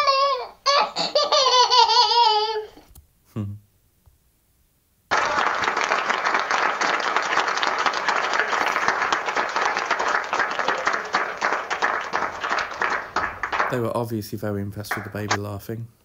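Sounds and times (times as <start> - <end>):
group of people applauding: 5.1 - 15.5.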